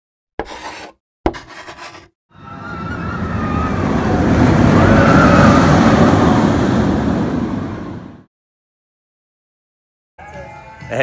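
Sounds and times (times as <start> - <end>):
roller coaster rumbling rush: 2.4 - 8.3.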